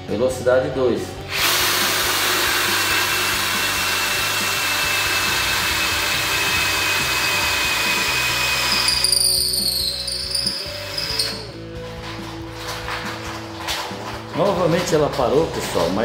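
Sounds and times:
cordless drill motor whine: 1.3 - 11.5
drill bit cutting wood: 1.3 - 11.5.

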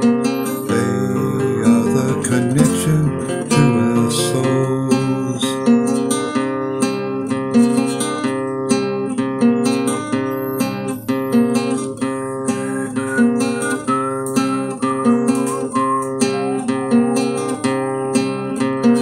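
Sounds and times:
wavering melody line: 0.0 - 19.0
plucked strings playing chords: 0.8 - 9.9.

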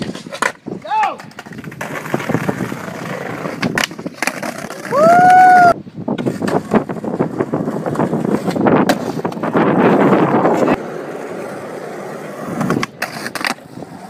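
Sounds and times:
skateboard clicks and knocks: 0.0 - 14.0
skateboard wheels rolling on asphalt: 0.0 - 14.0.

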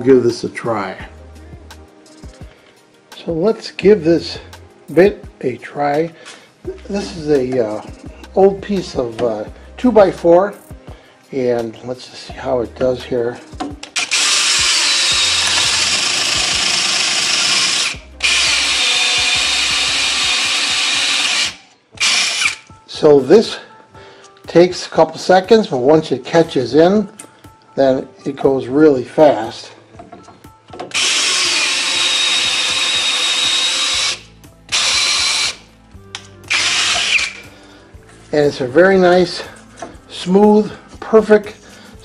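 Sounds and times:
drill press boring into wood: 14.0 - 22.7, 30.9 - 35.6, 36.5 - 37.4.

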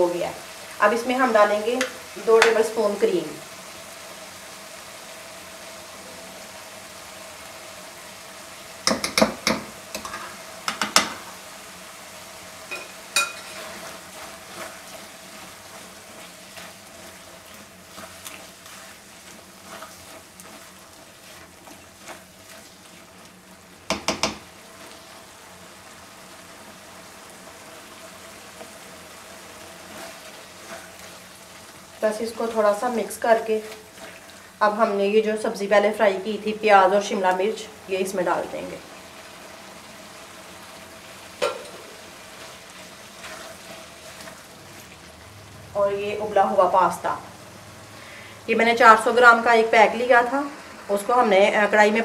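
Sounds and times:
sauce sizzling in a wok: 0.0 - 52.0
spoon knocking and scraping pan: 1.8 - 2.6, 8.8 - 11.3, 12.7 - 16.8, 23.8 - 24.5, 41.4 - 42.1.

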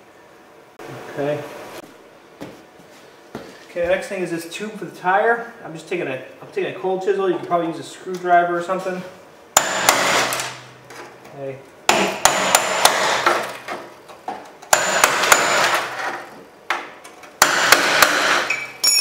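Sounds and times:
hammer striking steel chisel: 9.6 - 10.3, 11.9 - 13.4, 14.7 - 15.8, 17.4 - 19.0.

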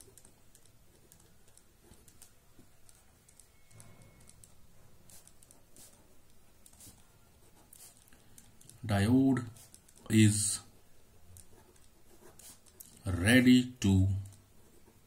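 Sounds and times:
pen scratching on paper: 0.0 - 3.4, 4.0 - 8.8, 9.4 - 10.1, 10.7 - 13.0, 14.4 - 15.0.

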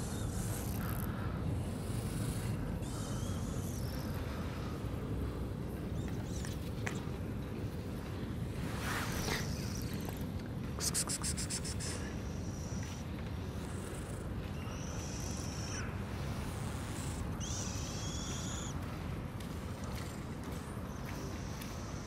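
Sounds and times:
small birds chirping: 0.0 - 7.8, 8.8 - 22.0.

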